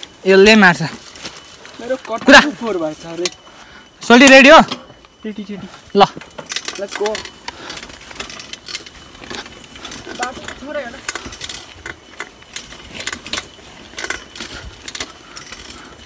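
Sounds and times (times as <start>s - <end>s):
mountain bike rattling and clicking: 0.0s - 16.0s.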